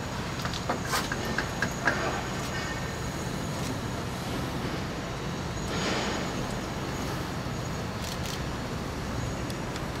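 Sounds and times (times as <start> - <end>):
mechanical workshop noise: 0.0 - 10.0.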